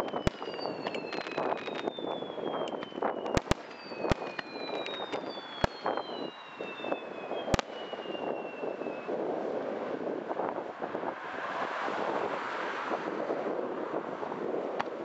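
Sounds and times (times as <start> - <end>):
crackle of small pops: 0.0 - 6.0, 7.5 - 7.8
firework shells bursting: 0.0 - 8.8
falling firework whistles: 0.0 - 9.2.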